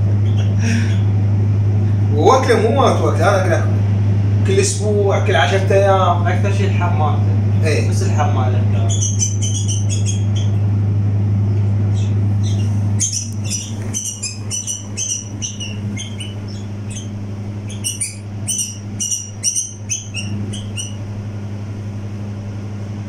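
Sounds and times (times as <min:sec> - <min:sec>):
chicks begging chirps: 0:00.0 - 0:03.0, 0:07.4 - 0:10.8, 0:11.4 - 0:21.4
steady low hum: 0:00.0 - 0:23.0.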